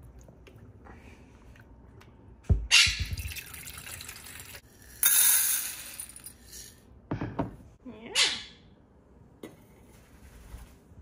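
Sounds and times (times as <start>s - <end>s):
pellets poured into metal bowl: 4.7s - 6.8s
thump on counter: 7.1s - 7.6s.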